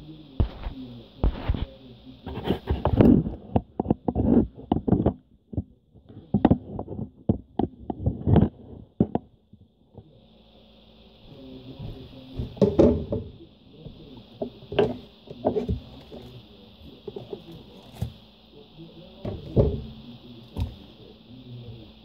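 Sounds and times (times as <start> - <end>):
steady high hiss: 0.0 - 3.0, 9.4 - 22.0
knocks and clatters on cutting board: 12.4 - 13.3.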